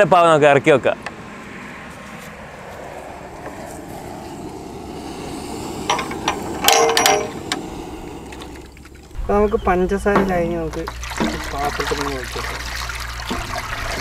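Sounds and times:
steady low hiss: 0:03.4 - 0:12.6
metal pan clanking: 0:05.9 - 0:07.4.

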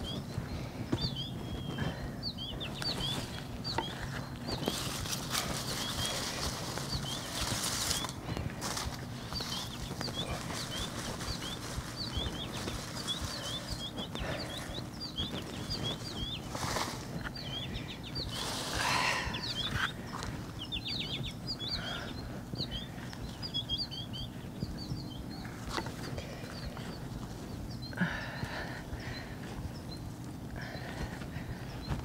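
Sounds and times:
small birds chirping: 0:00.0 - 0:32.0
hands digging through soil: 0:02.7 - 0:20.6.

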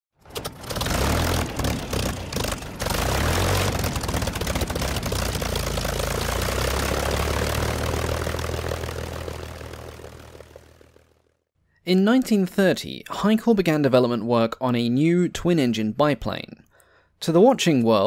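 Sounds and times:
propeller plane engine: 0:00.2 - 0:11.4.

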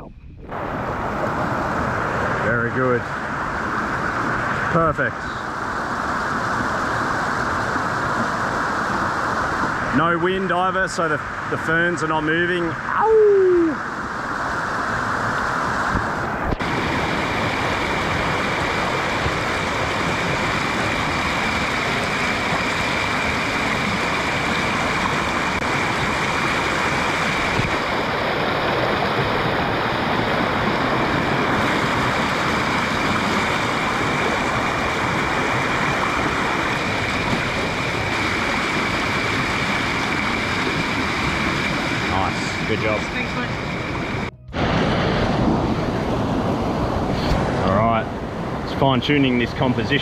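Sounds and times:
stream rushing over rocks: 0:00.6 - 0:11.5, 0:12.8 - 0:49.8.

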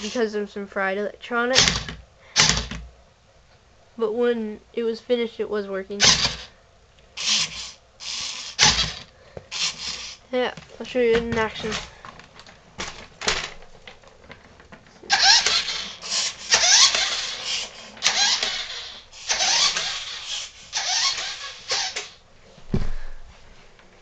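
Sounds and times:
toy car motor whirring: 0:00.0 - 0:00.2, 0:06.0 - 0:06.5, 0:07.2 - 0:10.2, 0:15.1 - 0:22.2
low thump: 0:22.7 - 0:23.2.

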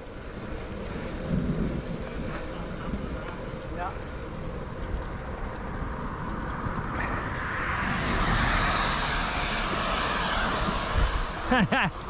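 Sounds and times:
tyre road rumble: 0:00.0 - 0:12.0
wind: 0:00.0 - 0:12.0
hiss: 0:07.0 - 0:12.0.

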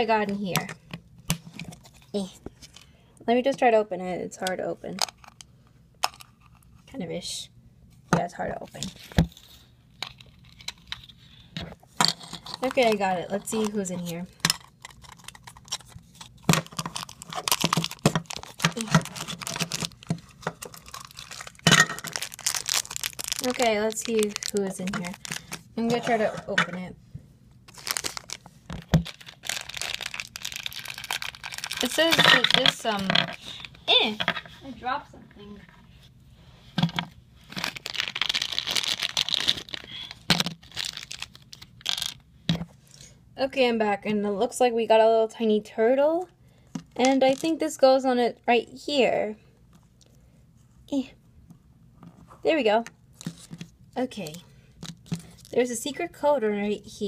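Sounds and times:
plastic packaging crinkling: 0:08.7 - 0:11.2, 0:12.4 - 0:25.8, 0:27.7 - 0:33.8, 0:37.4 - 0:42.2, 0:47.1 - 0:47.6, 0:53.2 - 0:55.6.

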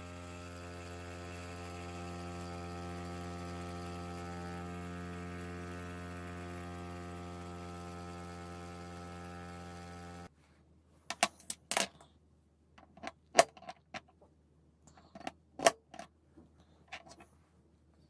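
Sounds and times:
bench grinder grinding: 0:00.0 - 0:10.3.

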